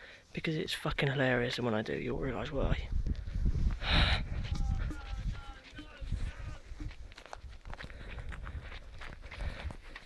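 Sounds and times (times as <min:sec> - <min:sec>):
footsteps on gravel path: 0:02.2 - 0:10.0
wind rumble on microphone: 0:02.3 - 0:10.0.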